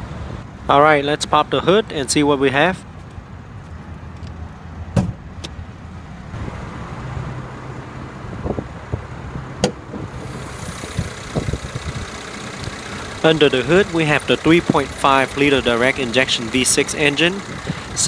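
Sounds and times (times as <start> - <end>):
hood latch click: 9.6 - 9.8
car engine idling: 9.8 - 18.0.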